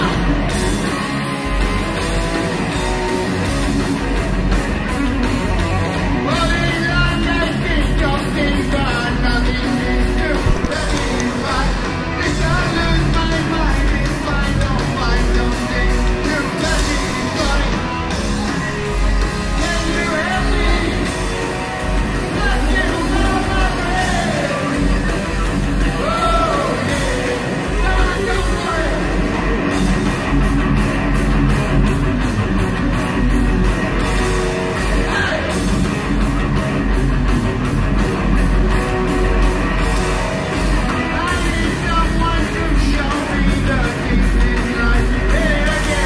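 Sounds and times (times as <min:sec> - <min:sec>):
live heavy metal band: 0:00.0 - 0:46.0
person singing: 0:06.3 - 0:18.6
fast drum hits: 0:10.2 - 0:21.1.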